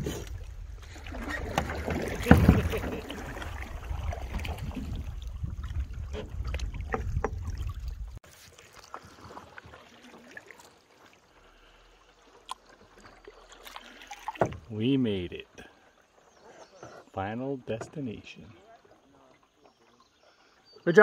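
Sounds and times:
paddles splashing in water: 0:00.0 - 0:21.0
paddle knocks: 0:00.8 - 0:07.7, 0:14.3 - 0:14.7
wind buffeting microphone: 0:02.2 - 0:08.2.

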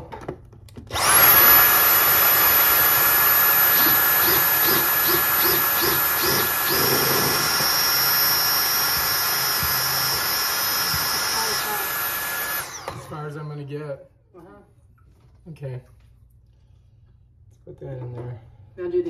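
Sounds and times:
vacuum cleaner whining: 0:00.8 - 0:13.4
drill boring into concrete: 0:00.9 - 0:13.3.

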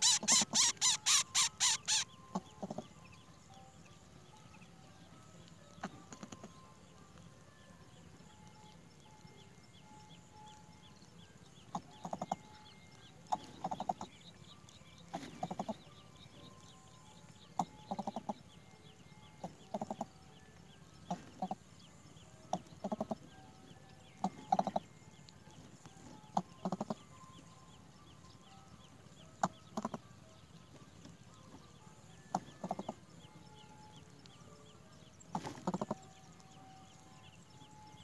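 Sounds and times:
bird giving low clucking calls: 0:00.0 - 0:02.9, 0:11.7 - 0:12.4, 0:13.3 - 0:14.2, 0:15.1 - 0:15.9, 0:17.6 - 0:18.4, 0:19.4 - 0:20.1, 0:21.1 - 0:21.6, 0:22.5 - 0:23.2, 0:24.2 - 0:24.9, 0:26.3 - 0:27.1, 0:29.4 - 0:30.1, 0:32.3 - 0:33.0, 0:35.3 - 0:36.1.

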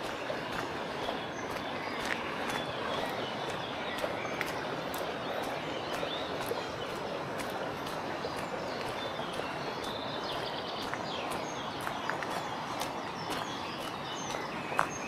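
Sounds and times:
birds chirping: 0:00.0 - 0:15.0
fast-flowing river: 0:00.0 - 0:15.0
footsteps on gravel: 0:00.0 - 0:15.0.

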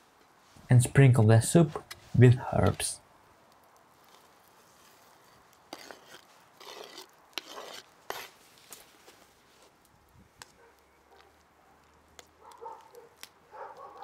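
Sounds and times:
ladle stirring soup: 0:04.0 - 0:09.8
herbs scraped off cutting board: 0:05.7 - 0:08.4.

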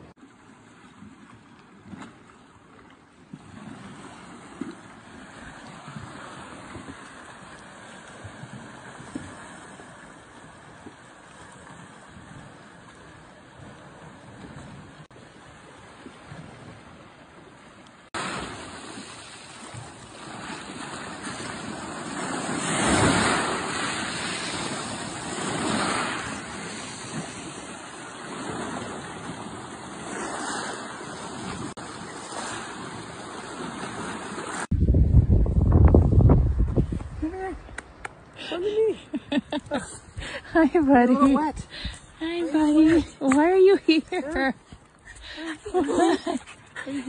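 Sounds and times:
waves breaking on rocky shore: 0:00.0 - 0:34.7.

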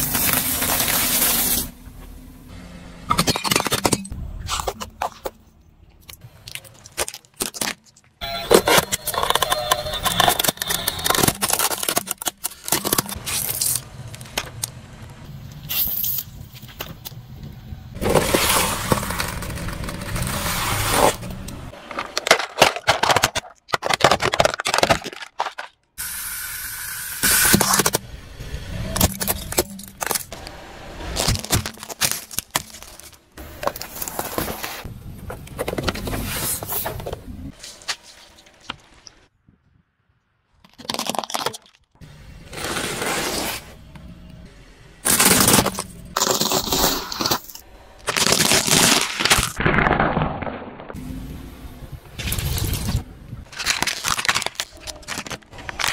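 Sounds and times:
tyre crushing small objects: 0:03.2 - 0:14.8, 0:18.0 - 0:25.9, 0:28.9 - 0:39.2, 0:40.5 - 0:42.0, 0:45.0 - 0:51.0, 0:52.2 - 0:55.9
plastic toy cracking under tyre: 0:08.6 - 0:14.7, 0:21.9 - 0:25.8, 0:53.5 - 0:55.9
cardboard box crushing: 0:10.1 - 0:13.8, 0:31.1 - 0:34.8, 0:48.1 - 0:49.8, 0:53.5 - 0:55.9.

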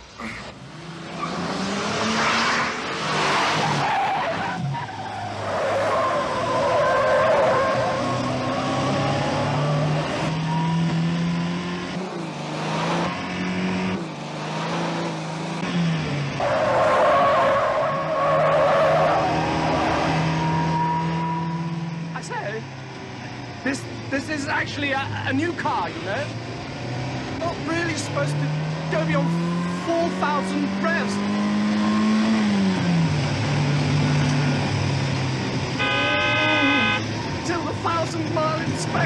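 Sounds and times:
car engine revving hard: 0:00.7 - 0:03.9, 0:05.3 - 0:21.9, 0:26.7 - 0:37.5
tyres squealing: 0:03.5 - 0:11.0, 0:16.4 - 0:21.8, 0:35.8 - 0:37.6.

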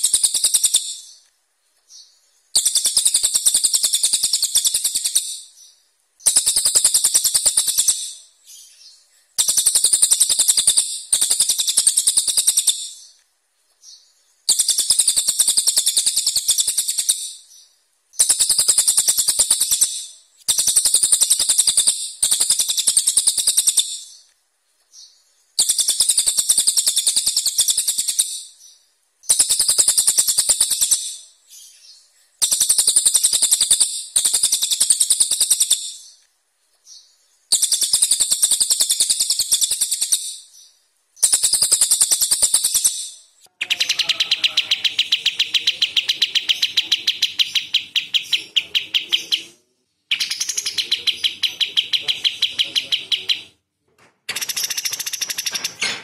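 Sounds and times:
songbird harsh rattling song: 0:00.0 - 0:13.2, 0:13.8 - 0:24.3, 0:24.9 - 0:36.2, 0:36.8 - 0:53.6, 0:54.3 - 0:56.0.

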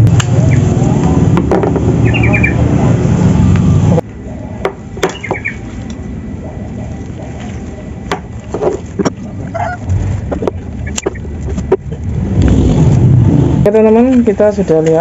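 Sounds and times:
small bird chirping: 0:02.0 - 0:02.7, 0:05.1 - 0:05.7
loud low rumble: 0:08.9 - 0:14.1.

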